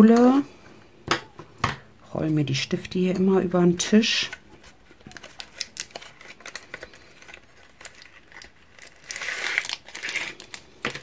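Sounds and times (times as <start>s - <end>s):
plastic sleeve crinkling: 3.8s - 11.0s.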